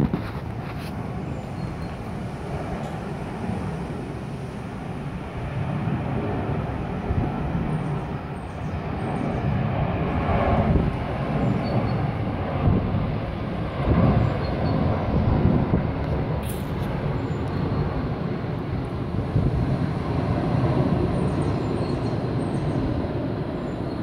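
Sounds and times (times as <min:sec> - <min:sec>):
jet airliner engine roar: 0:00.0 - 0:24.0.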